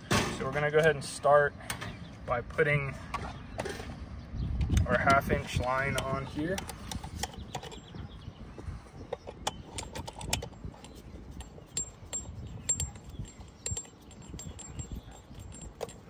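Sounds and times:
metal fitting clicks and clinks: 0:05.8 - 0:07.9, 0:09.1 - 0:16.0.

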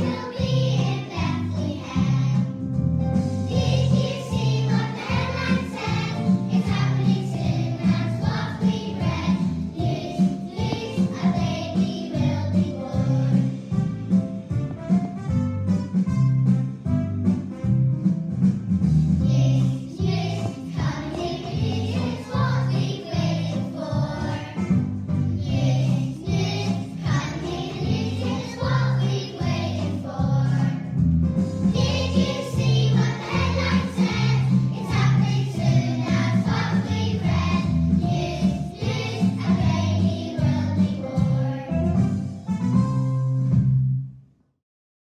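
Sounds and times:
children's choir singing: 0:00.0 - 0:02.5, 0:03.5 - 0:13.5, 0:19.3 - 0:24.8, 0:25.4 - 0:30.9, 0:31.8 - 0:41.7
instrumental accompaniment with bass: 0:00.0 - 0:44.2.

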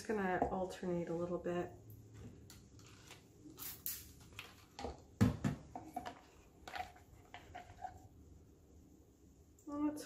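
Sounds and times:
sharp knocks on countertop: 0:04.8 - 0:06.1.

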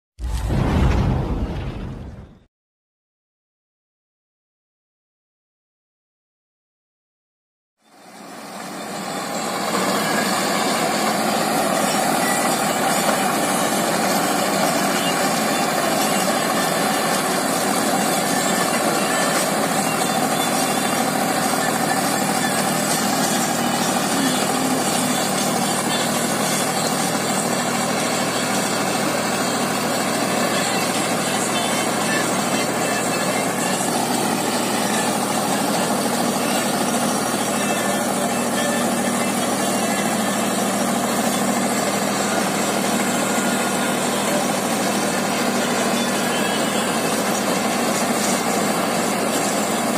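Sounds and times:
tractor diesel engine under load: 0:07.8 - 0:49.9
rotavator churning soil: 0:46.9 - 0:49.9.

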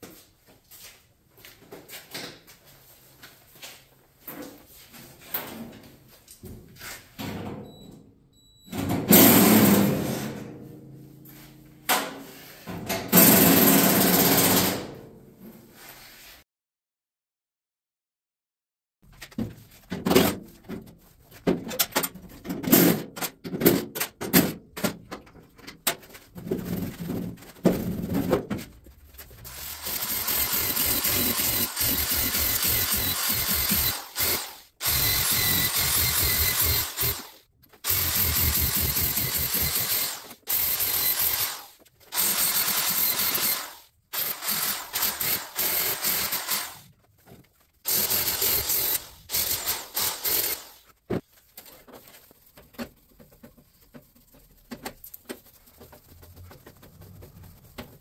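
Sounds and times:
angle grinder sanding steel: 0:29.6 - 0:46.8.

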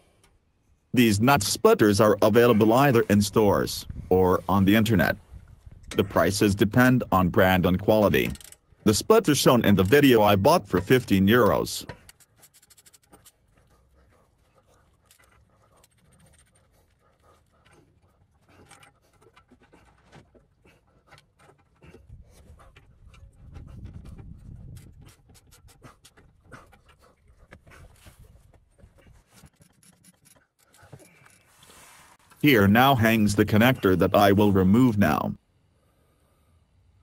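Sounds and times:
hand tools clicking and scraping: 0:05.8 - 0:34.4.

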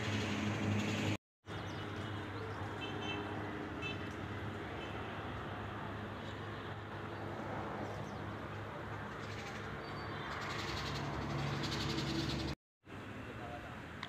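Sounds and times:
outdoor background noise: 0:00.0 - 0:14.0
birds calling: 0:09.0 - 0:12.6.

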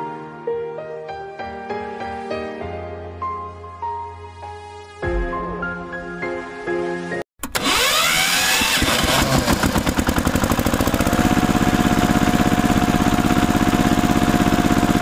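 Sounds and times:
tractor engine starting and idling: 0:07.4 - 0:15.0.

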